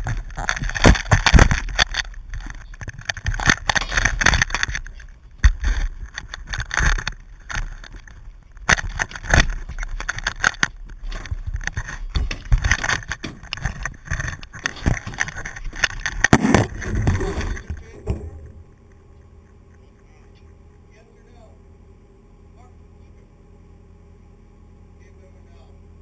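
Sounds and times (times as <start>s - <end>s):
fishing gear knocks and scrapes: 0.0s - 18.6s.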